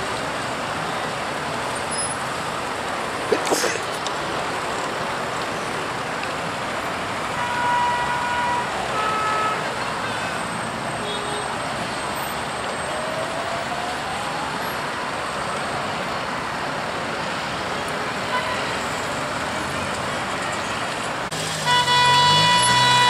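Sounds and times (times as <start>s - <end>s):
road traffic noise: 0.0s - 23.0s
car horn: 7.3s - 11.5s, 21.6s - 23.0s.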